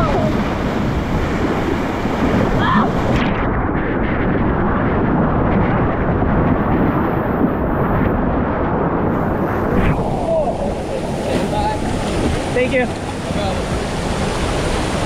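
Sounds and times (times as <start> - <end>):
white water rushing: 0.0 - 3.4, 9.1 - 15.0.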